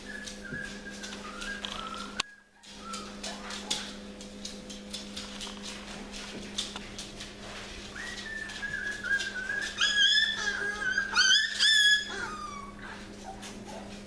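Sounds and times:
puppies whining: 0.0s - 4.2s, 7.8s - 14.0s.

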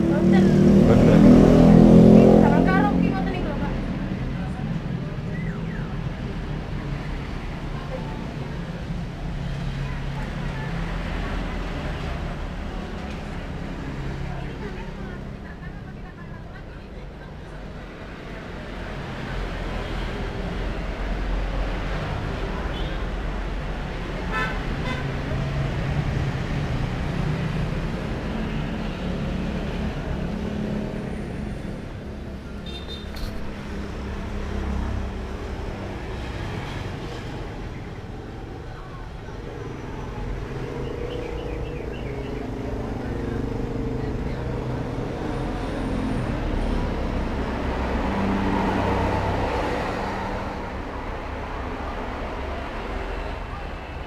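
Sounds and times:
vehicle engine drone: 0.0s - 9.4s, 25.2s - 54.0s
road traffic: 0.0s - 54.0s.

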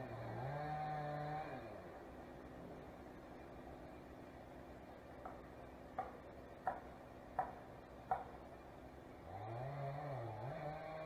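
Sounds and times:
engine revving: 0.0s - 2.0s, 9.2s - 11.0s
knocks: 6.0s - 8.4s.

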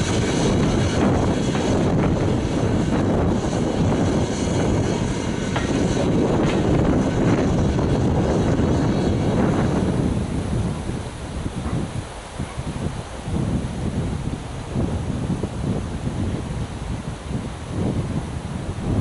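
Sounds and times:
train wheels rumbling on track: 0.0s - 12.8s.

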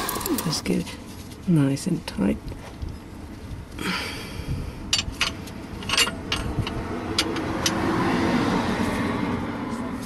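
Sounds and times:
metallic spanner clicks: 0.0s - 0.6s, 5.0s - 7.8s.

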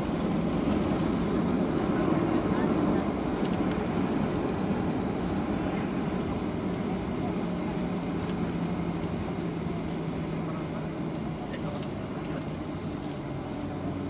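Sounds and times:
jet engine and airflow rumble: 0.0s - 14.0s.

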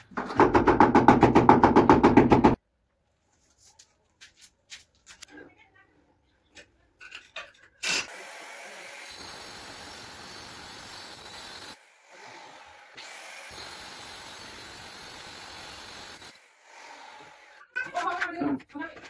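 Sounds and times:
stone cutter grinding: 7.8s - 17.8s.

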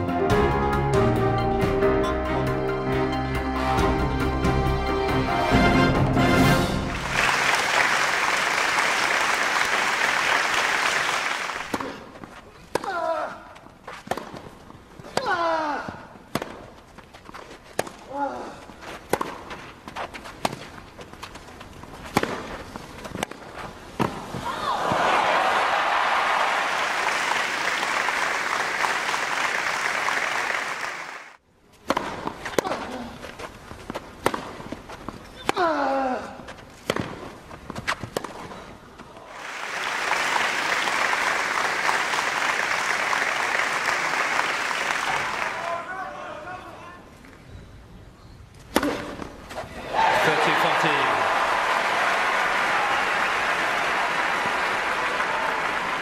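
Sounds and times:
stadium crowd applauding: 6.6s - 11.7s, 24.7s - 31.4s, 39.3s - 46.0s, 49.9s - 56.0s.

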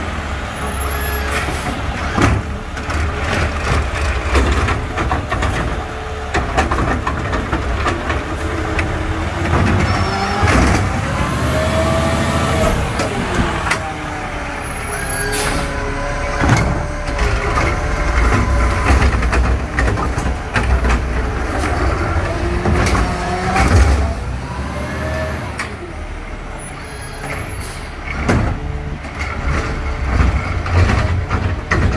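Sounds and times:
garbage truck diesel engine revving: 0.0s - 31.9s
cart banging: 1.3s - 24.4s.

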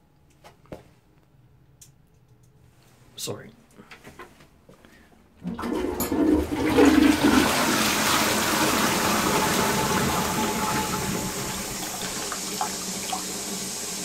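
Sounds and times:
toilet flushing water rush: 5.4s - 14.0s.

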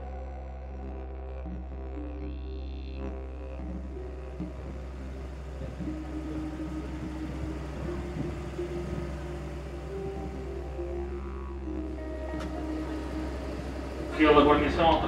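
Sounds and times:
low drone music with held tones: 0.0s - 15.0s.

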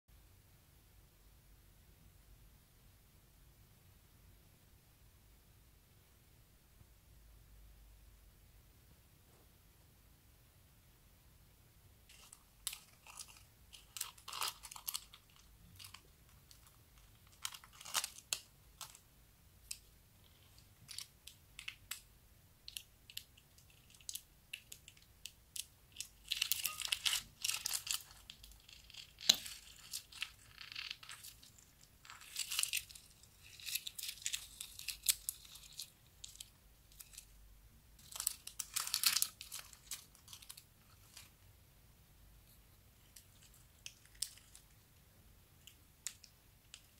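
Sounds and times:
plastic bag crinkling: 12.1s - 19.0s, 25.6s - 37.4s, 38.0s - 41.4s
slime crackling and popping: 25.5s - 37.1s.

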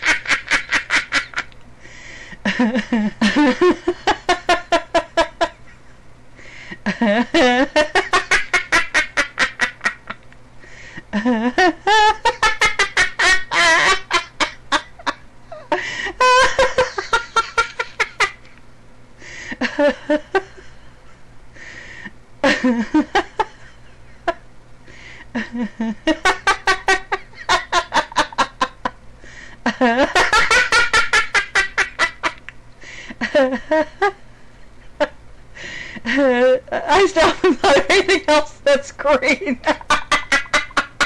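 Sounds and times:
woman laughing uncontrollably: 0.0s - 1.6s, 2.4s - 5.8s, 6.8s - 10.2s, 11.1s - 18.5s, 19.6s - 20.8s, 22.4s - 24.4s, 25.3s - 29.0s, 29.6s - 32.5s, 33.2s - 34.2s, 36.0s - 38.4s, 39.4s - 41.0s.

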